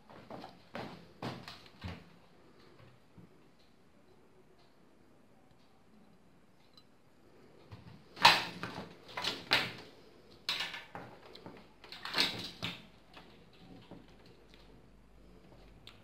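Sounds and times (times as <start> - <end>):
cables rustling and clattering: 7.6 - 16.0.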